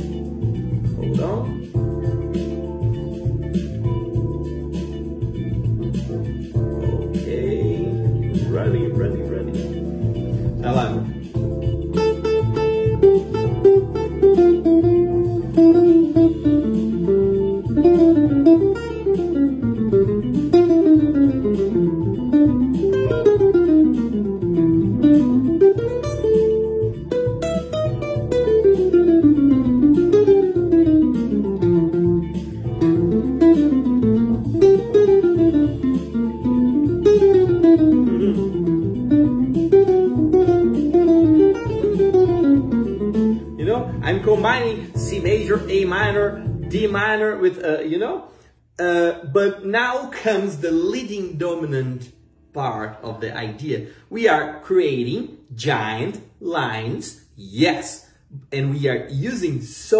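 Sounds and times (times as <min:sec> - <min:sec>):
backing track with low pulse: 0:00.0 - 0:47.1
electric guitar jazz line: 0:00.0 - 0:47.3.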